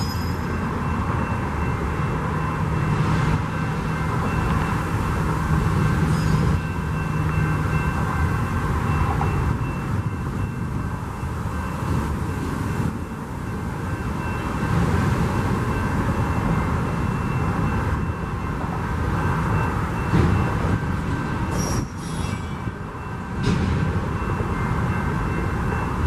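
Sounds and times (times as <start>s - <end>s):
high wheel squeal: 0.0s - 0.7s, 5.8s - 7.5s, 21.4s - 22.7s
freight train rumbling past: 0.0s - 26.0s.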